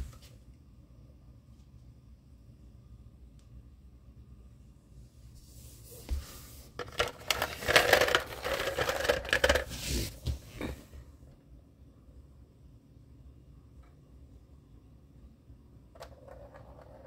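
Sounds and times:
plastic balls rattling in cat toy: 6.8 - 10.1, 16.0 - 17.0.

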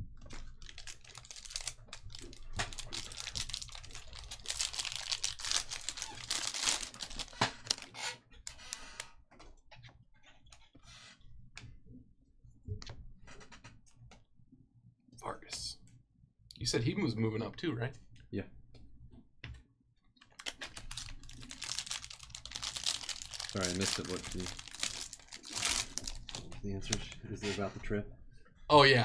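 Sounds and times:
wrapper tearing and crinkling: 0.4 - 8.9, 20.3 - 27.0.

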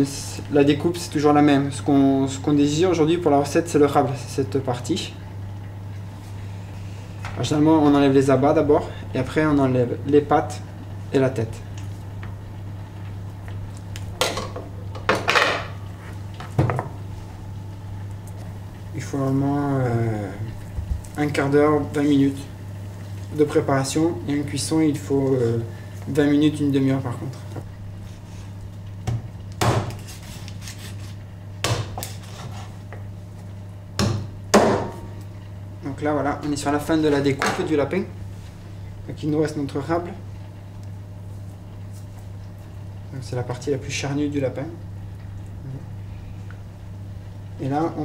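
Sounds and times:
low kitchen hum: 0.0 - 48.0
knife chopping onto cutting board: 31.6 - 32.5.

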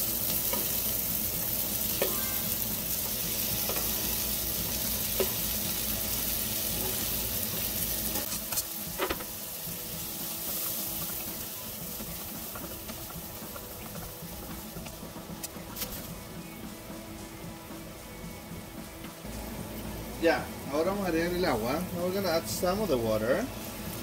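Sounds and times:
vegetables sizzling in a pan: 0.0 - 24.0.

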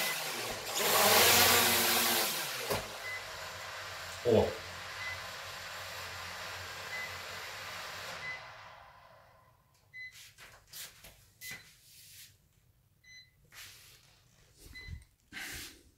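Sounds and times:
toy drone motors spinning down: 0.0 - 2.6.

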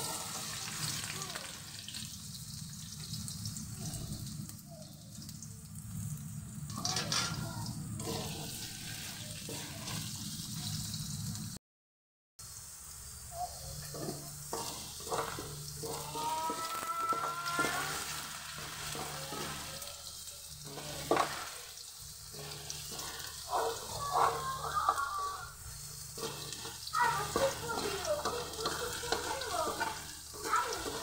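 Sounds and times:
potatoes sizzling in hot oil: 0.0 - 11.6, 12.4 - 31.0
wooden spatula scraping a wok: 8.0 - 10.9, 13.7 - 31.0.

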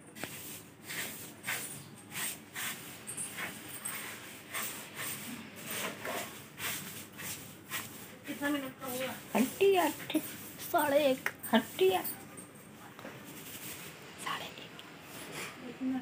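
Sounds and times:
broom sweeping tiled floor: 0.0 - 12.5, 13.1 - 14.0, 15.0 - 16.0.

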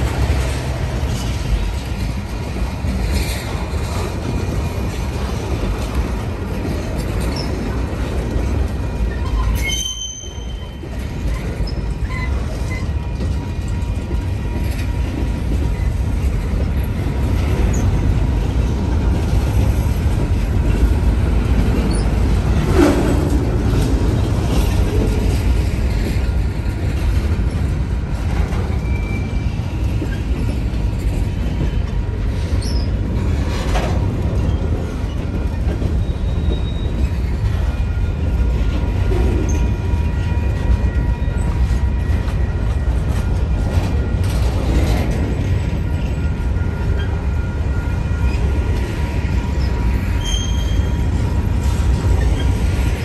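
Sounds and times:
train wheels rumbling on rails: 0.0 - 53.0
faint thin wheel squeals: 9.1 - 13.0, 49.6 - 51.0.

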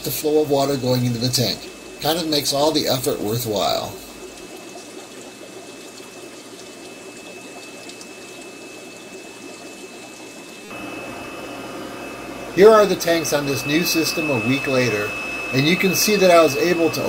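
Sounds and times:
water pouring and splashing: 0.0 - 10.8
steady mechanical hum: 0.0 - 17.0.

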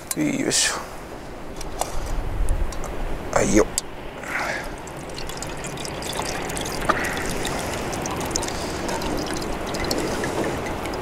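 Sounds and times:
liquid trickling through strainer: 4.6 - 11.0.

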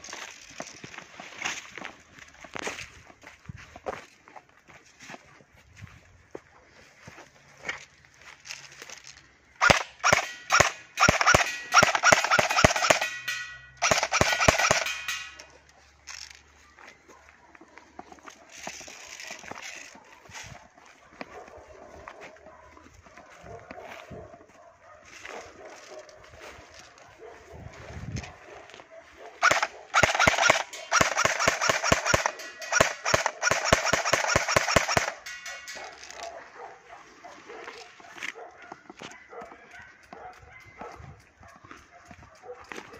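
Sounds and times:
airsoft gun single shots: 9.6 - 13.2, 13.8 - 15.4, 29.4 - 35.2.

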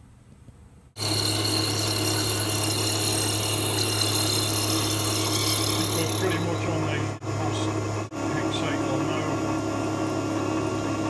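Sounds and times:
mill cutting metal: 1.0 - 7.2.

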